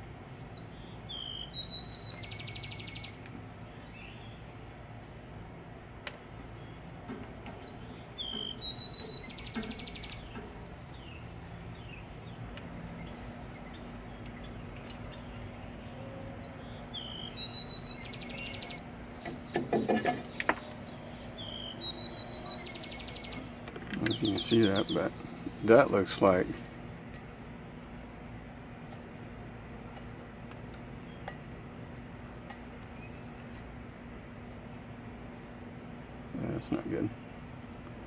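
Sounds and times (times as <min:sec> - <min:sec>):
songbird singing with trill: 0:00.4 - 0:04.7, 0:06.4 - 0:26.3, 0:30.9 - 0:31.4, 0:32.8 - 0:33.5
metal knocks clattering: 0:19.2 - 0:20.8.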